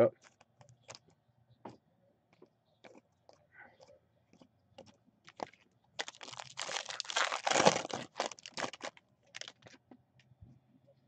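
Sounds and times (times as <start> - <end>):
foil wrapper crinkling: 5.3 - 9.8.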